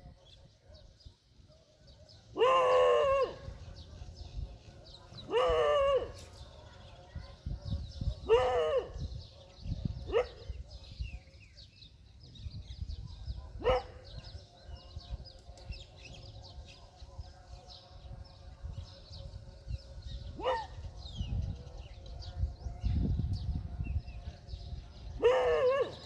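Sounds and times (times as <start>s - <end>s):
small birds chirping: 0.0s - 26.0s
loud pitch-sweeping bird calls: 2.3s - 3.9s.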